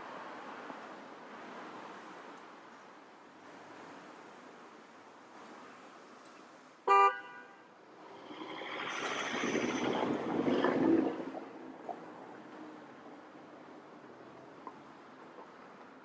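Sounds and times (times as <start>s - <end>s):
car passing close by: 7.9s - 12.1s
tram rolling in: 7.9s - 14.2s.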